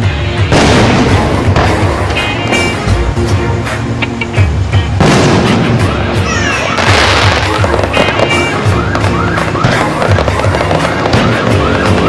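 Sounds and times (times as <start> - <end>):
fireworks popping and crackling: 0.5 - 2.9, 4.2 - 12.0
fireworks whistles: 5.0 - 12.0
music with low beat: 6.8 - 12.0.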